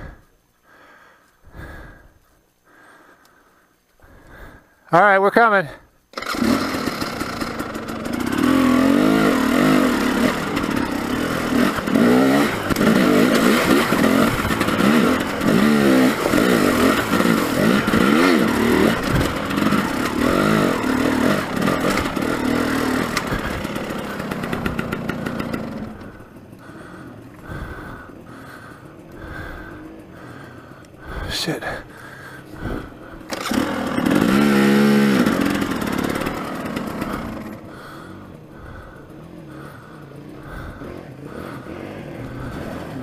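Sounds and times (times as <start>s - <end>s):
dirt bike engine revving: 6.1s - 43.0s
clatter over rock: 10.2s - 25.8s.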